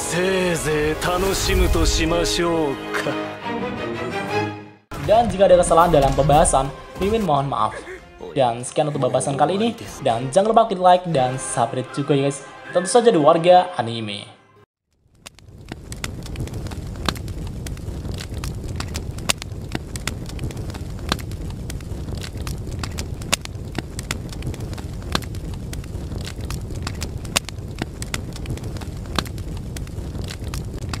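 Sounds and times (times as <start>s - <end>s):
fire crackling: 0.0s - 2.7s, 4.9s - 8.3s, 14.9s - 31.0s.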